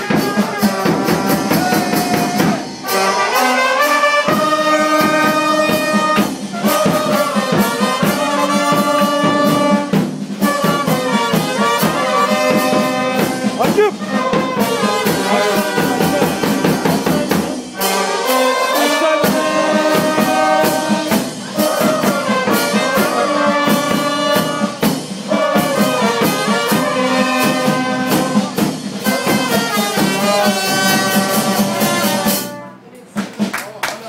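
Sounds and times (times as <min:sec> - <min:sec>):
bass drum beat: 0:00.0 - 0:02.8, 0:04.4 - 0:17.6
brass band playing: 0:00.0 - 0:32.9.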